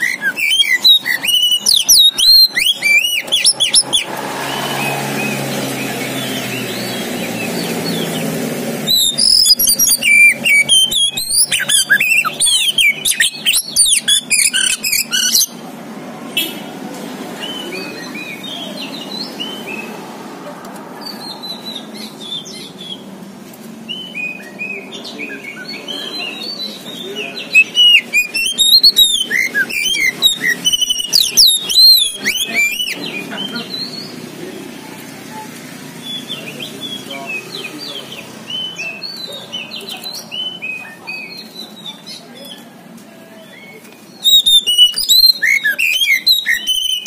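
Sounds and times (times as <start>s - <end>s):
bird singing whistled phrases: 0.0s - 8.0s, 8.9s - 15.6s, 23.9s - 34.1s, 43.4s - 47.0s.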